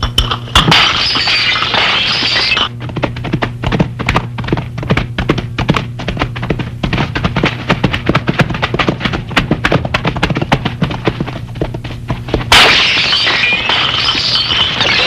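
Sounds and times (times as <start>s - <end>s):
horses' hooves thudding: 2.7s - 12.6s.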